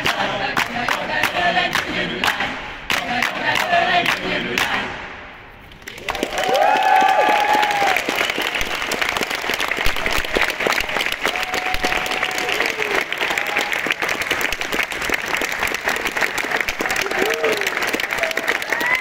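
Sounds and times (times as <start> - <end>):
audience applause: 5.8 - 19.0.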